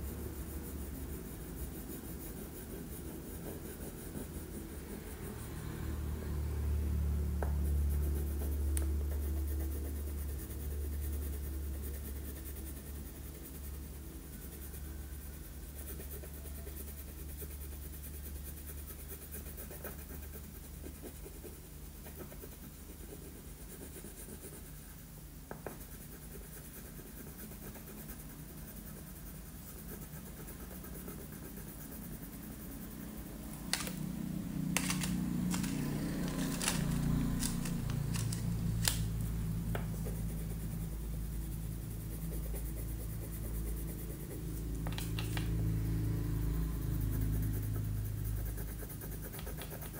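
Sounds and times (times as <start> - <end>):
crayon scratching on paper: 0.0 - 6.1, 7.3 - 49.9
low steady hum: 0.0 - 49.9
crayons clicking in tray: 33.6 - 34.0, 34.8 - 39.1.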